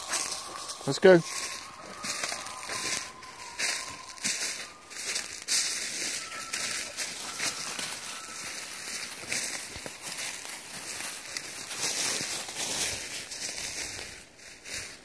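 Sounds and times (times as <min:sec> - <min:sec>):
brush rustling: 0:00.0 - 0:15.0
footsteps crunching dry leaves: 0:00.0 - 0:15.0.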